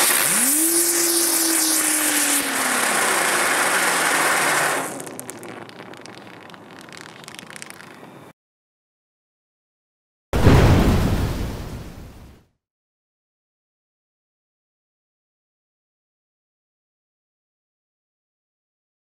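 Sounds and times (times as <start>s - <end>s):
firework hissing with whine: 0.0s - 8.0s
faint fizz with crackles: 0.0s - 8.3s.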